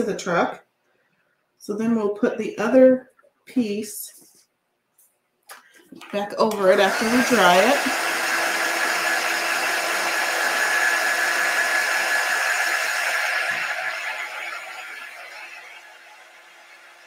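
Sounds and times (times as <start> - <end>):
heat gun blowing with fan whine: 6.4 - 17.0.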